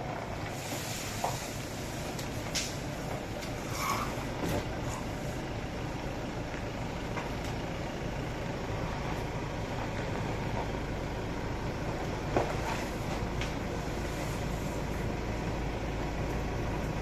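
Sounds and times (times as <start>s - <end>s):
engine idling: 0.0s - 17.0s.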